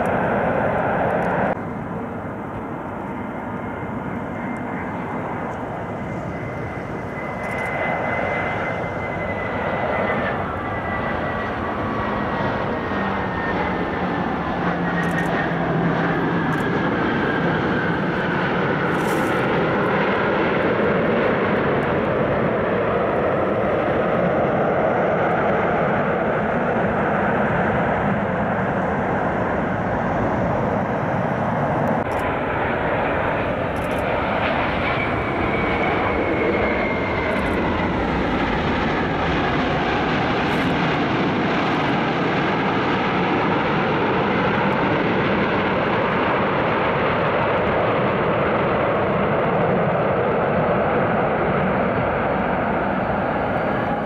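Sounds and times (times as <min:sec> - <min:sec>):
jet engines rolling: 0:00.0 - 0:54.0.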